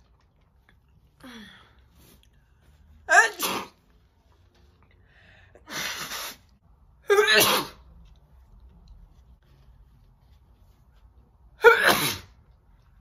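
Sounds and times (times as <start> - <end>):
woman sneezing: 3.1 - 3.8, 7.1 - 7.8, 11.6 - 12.4.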